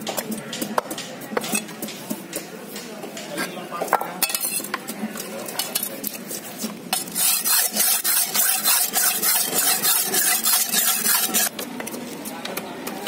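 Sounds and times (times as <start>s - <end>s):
knife scraping on sharpening stone: 6.9s - 11.5s.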